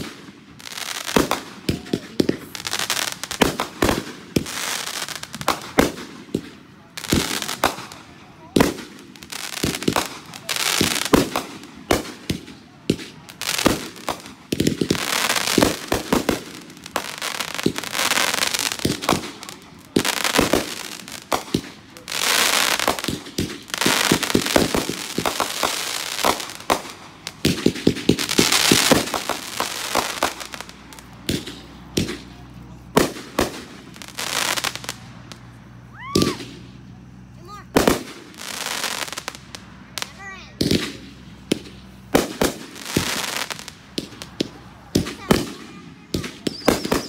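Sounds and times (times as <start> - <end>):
fireworks bangs: 0.0 - 47.0
fireworks crackle: 0.0 - 47.0.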